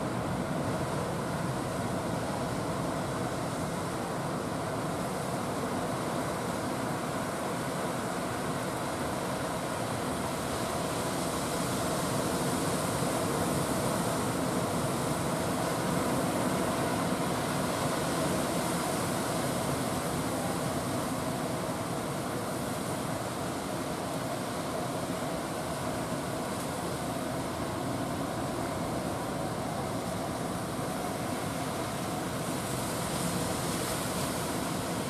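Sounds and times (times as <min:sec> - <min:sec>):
surf roaring: 0:00.0 - 0:35.0.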